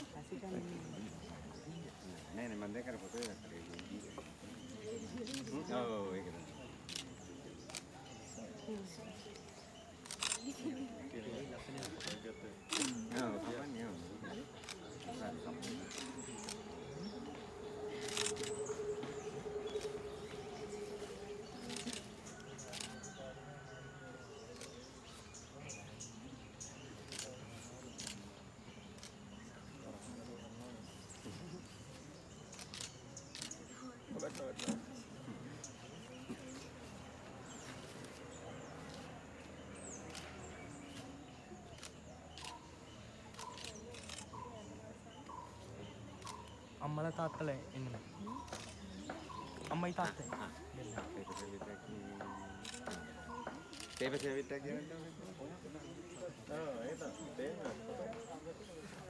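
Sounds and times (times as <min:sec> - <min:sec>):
birds chirping: 0:00.0 - 0:59.0
sharp clicks: 0:17.9 - 0:19.9.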